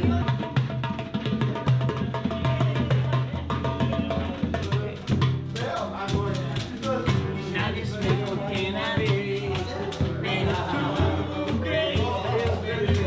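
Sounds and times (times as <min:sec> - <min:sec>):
hand drums beating: 0:00.0 - 0:13.0
person singing: 0:03.9 - 0:13.0.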